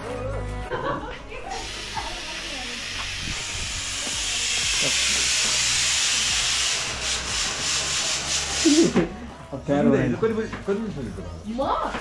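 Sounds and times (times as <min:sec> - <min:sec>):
steady hissing noise: 0:01.5 - 0:09.0.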